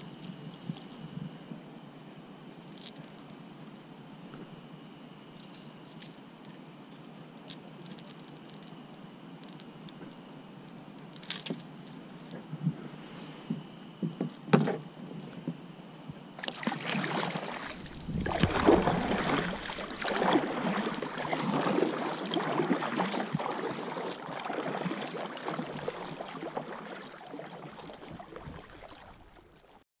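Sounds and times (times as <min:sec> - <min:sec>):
paddle splashing in water: 0:16.4 - 0:29.8
gear knocking on hull: 0:17.8 - 0:21.3.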